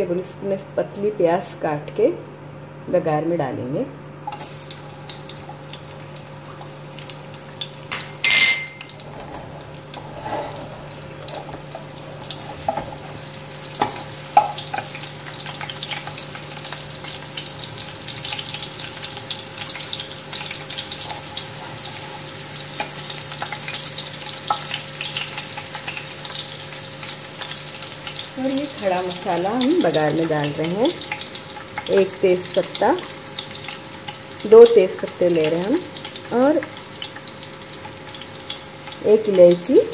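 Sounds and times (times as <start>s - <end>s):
onion sizzling in hot oil: 4.2s - 39.9s
ringing clink: 7.9s - 8.9s.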